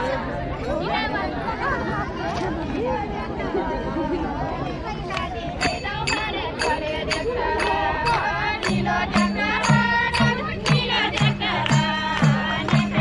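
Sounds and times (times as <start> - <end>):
voices singing: 5.1 - 13.0
sharp percussion: 5.6 - 13.0.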